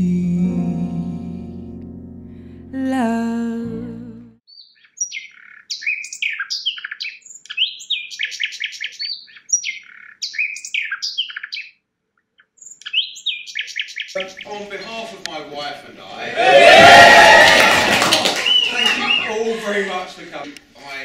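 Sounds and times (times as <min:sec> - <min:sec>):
songbird singing: 0:04.5 - 0:15.4, 0:18.4 - 0:19.4.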